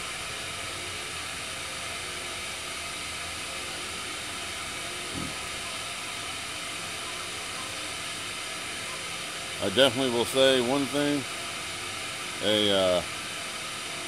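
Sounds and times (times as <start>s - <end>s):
gas stove hissing: 0.0s - 14.0s.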